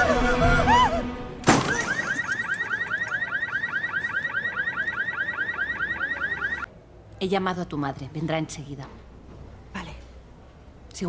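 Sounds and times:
car alarm chirping: 1.7s - 6.7s.

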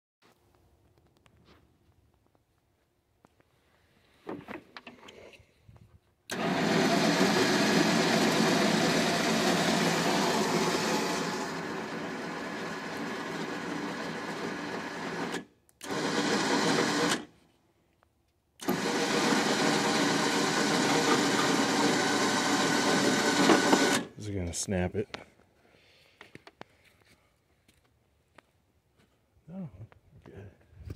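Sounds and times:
electric winch motor and gears: 6.3s - 17.3s, 18.6s - 24.1s.

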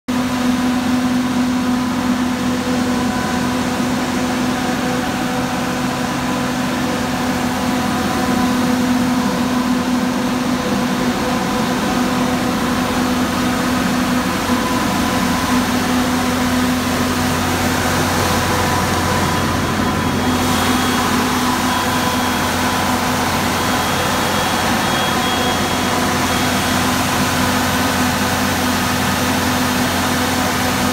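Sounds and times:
diesel generator drone: 0.1s - 30.9s.

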